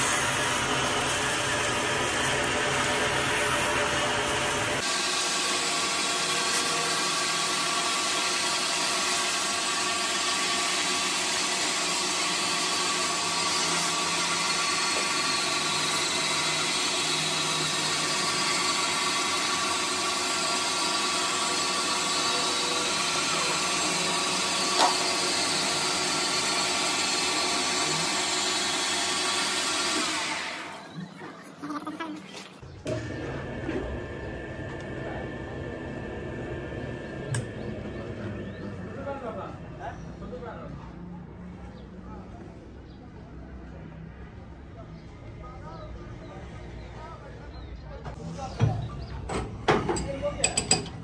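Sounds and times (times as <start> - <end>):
metal lathe humming: 0.0 - 30.9, 32.9 - 39.8.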